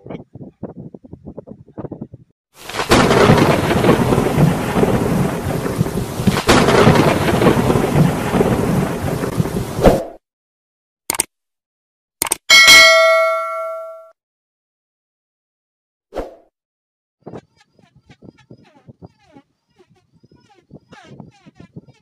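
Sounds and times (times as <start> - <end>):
rain: 2.6 - 9.9
thunder: 2.7 - 9.9.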